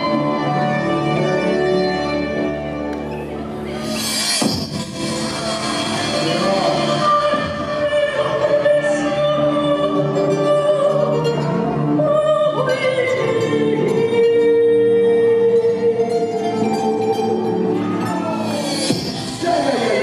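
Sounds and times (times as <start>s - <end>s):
music: 0.0s - 20.0s
person singing long notes: 5.4s - 20.0s.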